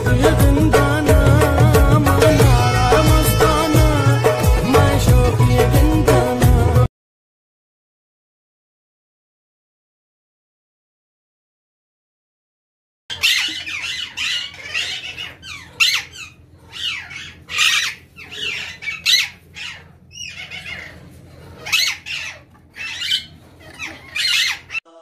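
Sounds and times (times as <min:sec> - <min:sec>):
parrots squawking: 0:01.8 - 0:05.6, 0:13.1 - 0:25.0.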